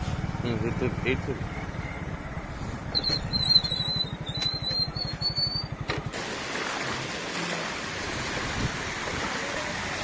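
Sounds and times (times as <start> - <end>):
motorcycle engine idling: 0.0 - 6.1
high wavering whistling tone: 2.9 - 5.7
floodwater rushing: 6.1 - 10.0.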